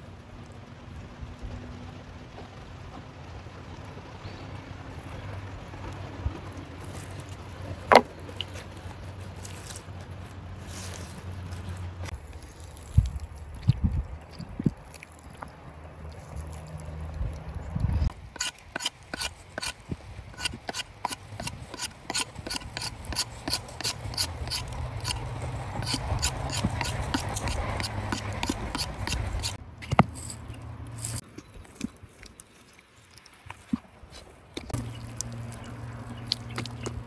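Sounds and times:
knife scraping stick: 18.3 - 31.2.

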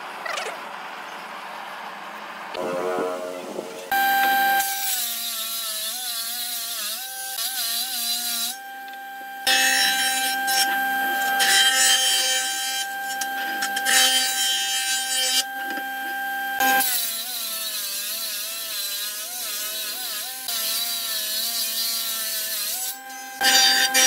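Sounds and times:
motor whine: 2.5 - 4.9, 8.5 - 11.6
jointer planing wood: 2.6 - 24.0.

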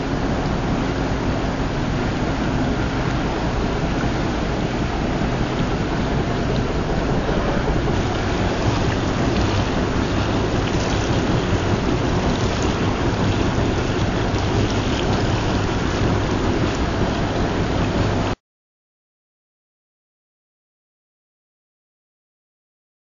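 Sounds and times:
low hum: 0.0 - 18.4
water gushing from a pipe: 2.0 - 18.4.

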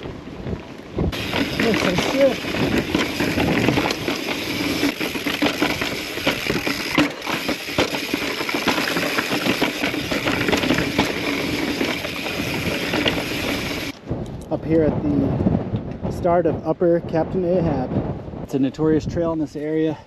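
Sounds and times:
bike tyres rumbling over rock: 0.0 - 14.0
bike rattling: 0.0 - 14.4.

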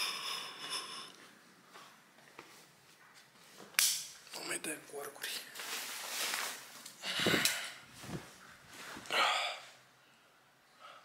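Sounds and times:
sheets and pillow rustling: 5.5 - 9.1
man breathing out heavily: 7.0 - 7.9.

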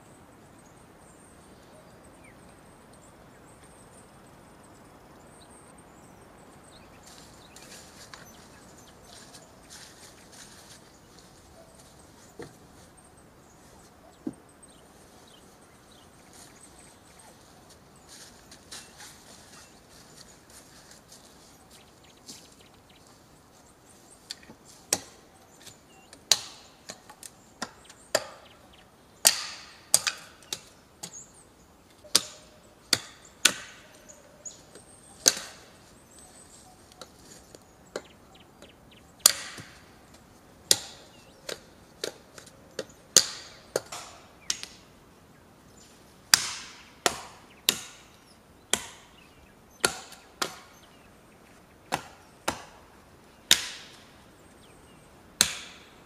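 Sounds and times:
axe chopping wood: 24.9 - 25.2, 26.3 - 28.4, 29.2 - 31.2, 32.1 - 33.9, 35.2 - 35.7, 39.2 - 39.9, 40.7 - 44.8, 46.3 - 48.1, 48.7 - 49.1, 49.8 - 50.8, 51.9 - 52.9, 53.5 - 54.0, 55.4 - 55.9.

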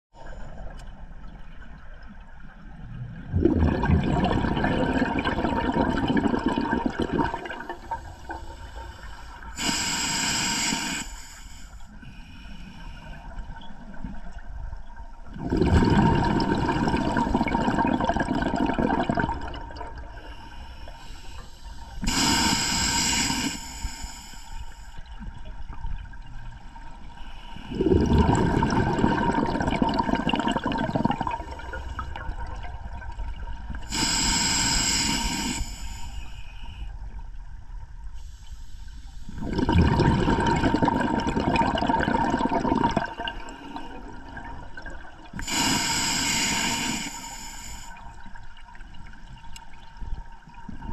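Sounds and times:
exhaled bubbles rushing: 3.0 - 8.0, 15.3 - 20.1, 27.7 - 33.7, 39.4 - 45.3
regulator hissing inhalations: 7.8 - 13.2, 20.2 - 25.0, 33.9 - 36.8, 45.4 - 48.1.

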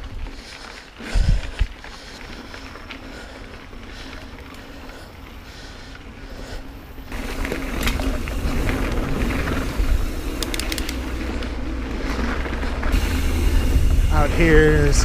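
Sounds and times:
bike rattles: 0.0 - 15.0
bike tyres on dirt: 0.0 - 15.0
wind noise on microphone: 1.0 - 1.8, 7.2 - 15.0.

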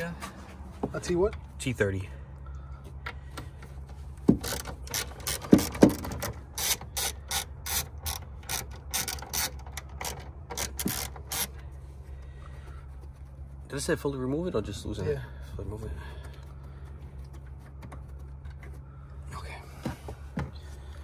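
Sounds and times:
hand ratchet clicking: 4.3 - 11.6.

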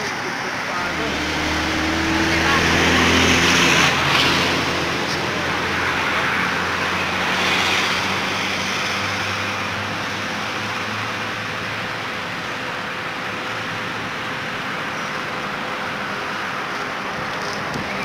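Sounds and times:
traffic hum: 0.0 - 18.0
vehicle passing: 0.6 - 11.6.

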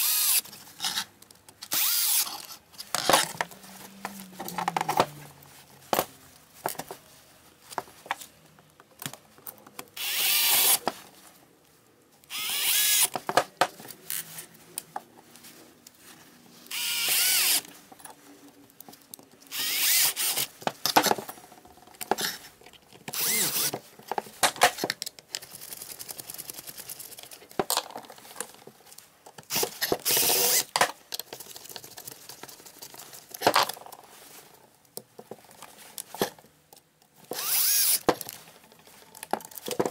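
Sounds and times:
cordless drill bursts: 0.0 - 0.4, 1.7 - 2.3, 10.0 - 10.8, 12.3 - 13.1, 16.7 - 17.6, 19.5 - 20.5, 23.2 - 23.7, 29.5 - 30.7, 37.3 - 38.0.

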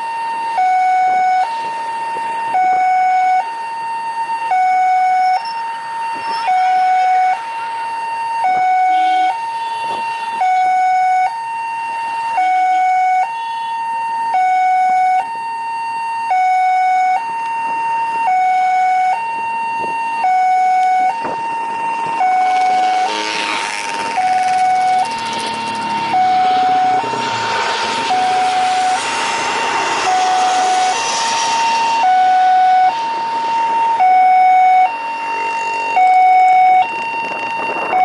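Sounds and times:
two-tone hi-lo siren: 0.0 - 38.0
jet airliner engines rushing: 22.0 - 36.0.

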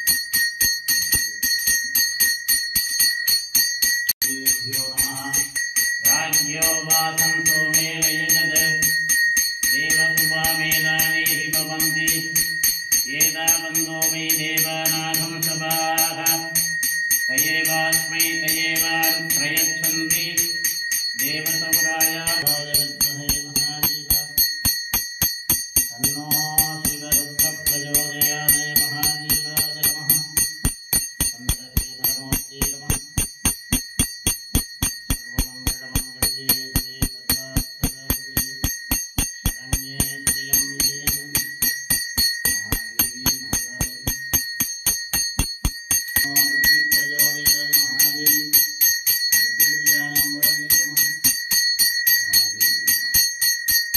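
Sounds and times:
hand bell ringing: 0.0 - 53.9
mantras chanted: 4.2 - 9.1, 9.7 - 24.5, 25.9 - 30.6, 31.3 - 33.2, 35.2 - 38.8, 39.5 - 41.8, 42.5 - 44.2, 46.2 - 48.8, 49.4 - 51.4, 52.2 - 53.2.

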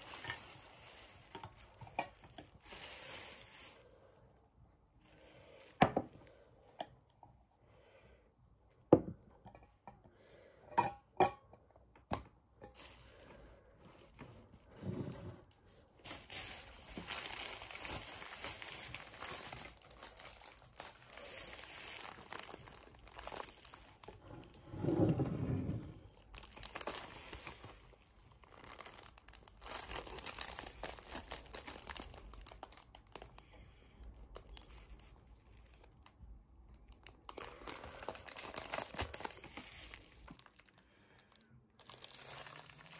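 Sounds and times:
packaging crinkling and rustling: 0.0 - 4.2, 5.0 - 6.5, 12.7 - 24.8, 25.8 - 33.5, 34.1 - 42.9.

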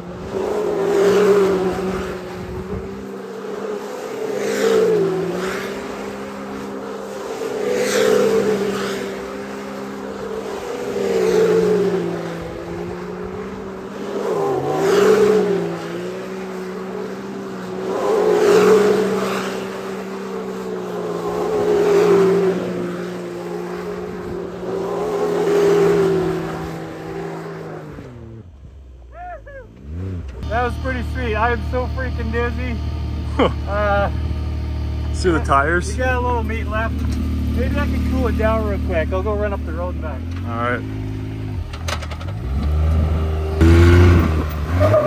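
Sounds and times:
tyres spinning on gravelly pavement: 0.0 - 28.0
engine at high revs: 0.0 - 28.6, 29.2 - 45.0.

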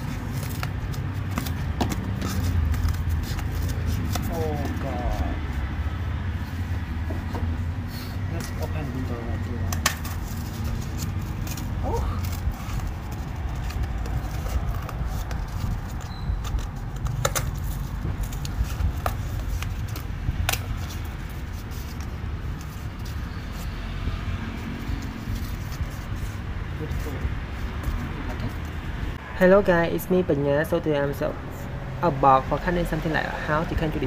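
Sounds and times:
cardboard and paper handled: 0.0 - 5.6, 8.3 - 28.8.

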